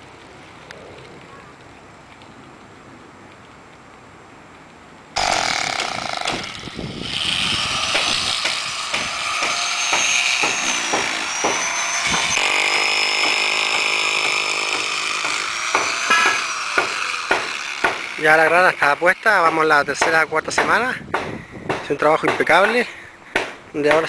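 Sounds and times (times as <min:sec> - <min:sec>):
electric power tool whining: 0:05.2 - 0:19.5.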